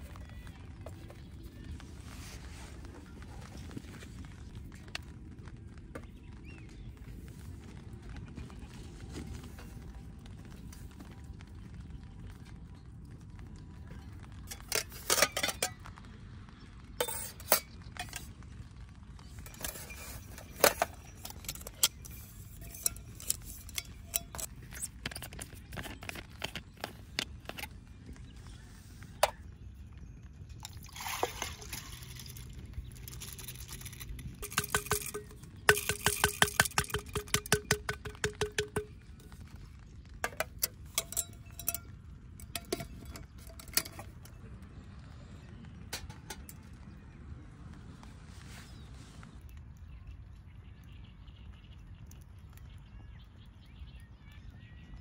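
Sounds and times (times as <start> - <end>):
metal cookware clinking: 14.5 - 16.0, 17.0 - 18.3, 19.5 - 27.7, 33.0 - 39.4, 40.2 - 44.3
water pouring: 30.5 - 39.4.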